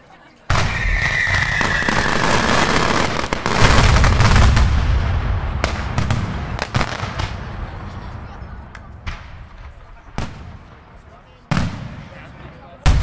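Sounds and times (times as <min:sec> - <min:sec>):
sharp firework bangs: 0:00.5 - 0:08.0
fireworks crackling: 0:00.5 - 0:13.0.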